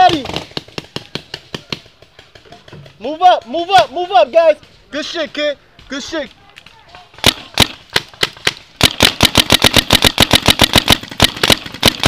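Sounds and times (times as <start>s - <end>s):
paintball marker firing: 7.1s - 12.0s.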